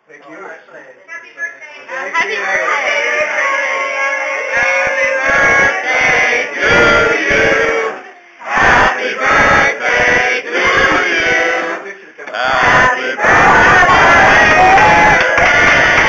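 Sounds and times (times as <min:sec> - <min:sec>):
crowd singing in unison: 0:02.2 - 0:16.0.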